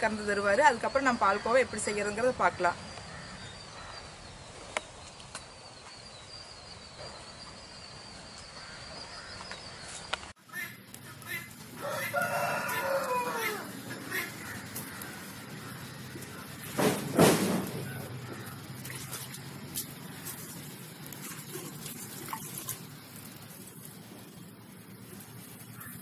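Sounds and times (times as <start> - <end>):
rooster crowing: 11.8 - 15.4.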